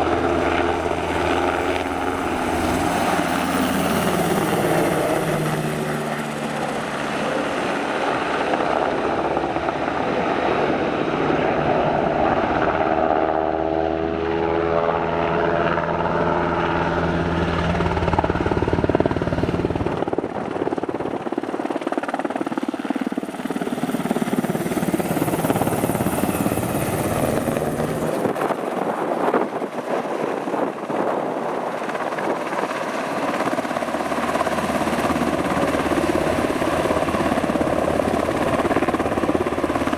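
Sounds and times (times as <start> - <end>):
helicopter rotor and turbine noise: 0.0 - 39.9.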